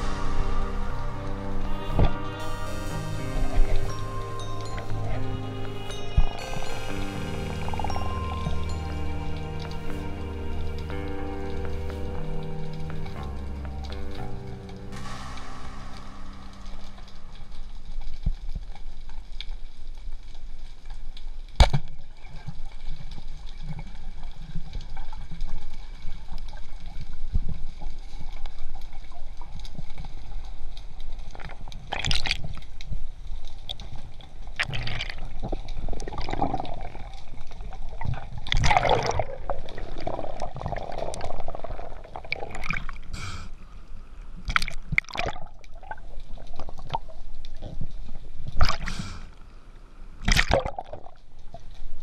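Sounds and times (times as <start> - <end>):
underwater low rumble: 0.0 - 21.4, 22.4 - 52.0
bubbling underwater: 34.6 - 43.1, 44.4 - 48.9, 50.2 - 51.7.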